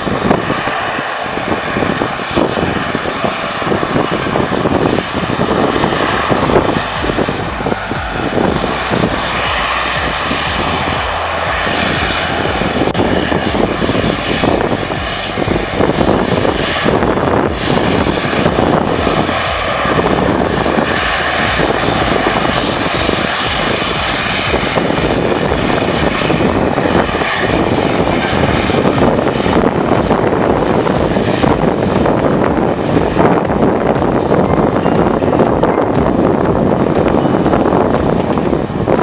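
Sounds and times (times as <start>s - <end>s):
high turbine whine: 0.0s - 39.0s
propeller drone: 0.0s - 39.0s.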